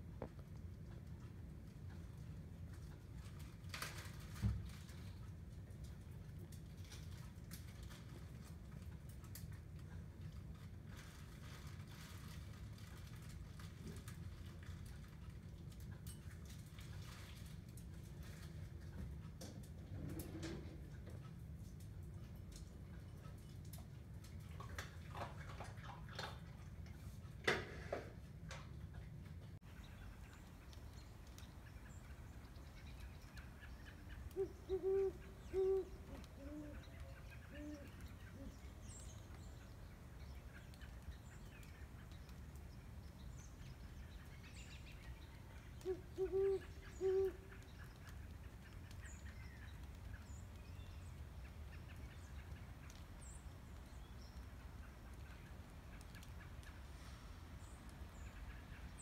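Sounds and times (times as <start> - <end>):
owls hooting: 33.9 - 38.6, 45.8 - 47.6.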